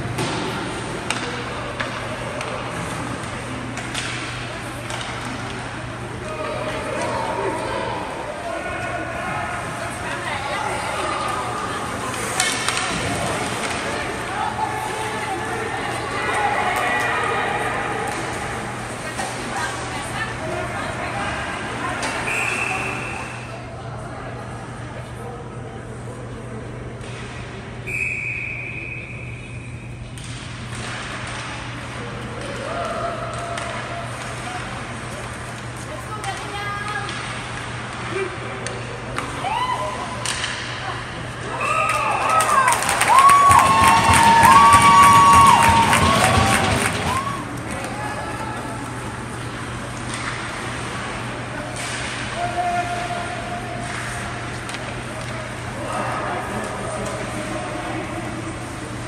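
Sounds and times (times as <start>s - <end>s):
spectators murmuring and calling out: 0.0s - 28.0s
referee's whistle: 22.3s - 23.5s, 27.8s - 29.9s.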